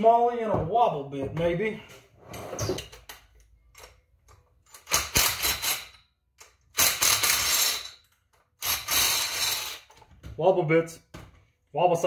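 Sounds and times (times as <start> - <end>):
impact driver rattling: 4.7 - 6.0.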